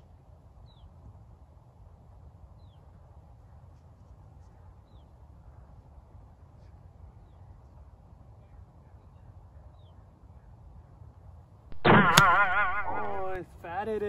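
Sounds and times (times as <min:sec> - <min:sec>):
faint outdoor background noise: 0:00.0 - 0:14.0
golf club striking ball: 0:11.7 - 0:13.4
loud wavering pitched cry: 0:11.8 - 0:13.4.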